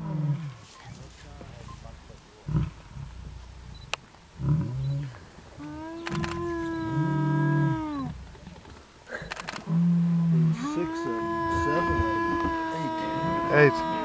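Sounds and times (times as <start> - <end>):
lion soft low roars: 2.4 - 3.8, 4.4 - 14.0.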